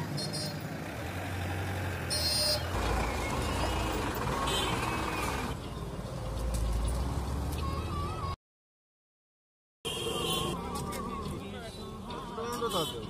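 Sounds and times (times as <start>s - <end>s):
passing vehicle engines: 0.0s - 8.4s.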